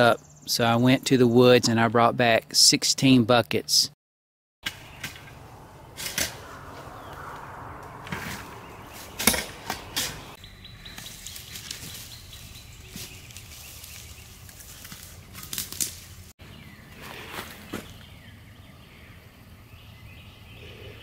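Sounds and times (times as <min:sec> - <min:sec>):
dry leaves rustling and crunching: 0:08.3 - 0:16.3
footsteps through leaves: 0:10.1 - 0:16.3.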